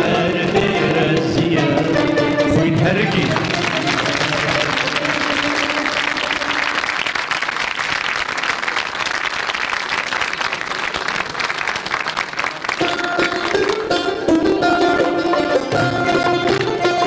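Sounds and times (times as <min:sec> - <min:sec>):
audience applauding: 0:02.1 - 0:15.8.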